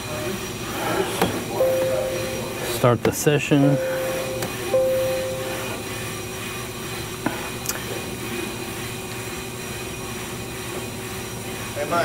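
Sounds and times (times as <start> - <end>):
mechanical hum: 0.0 - 12.0
held beep: 1.6 - 2.9, 3.6 - 6.0.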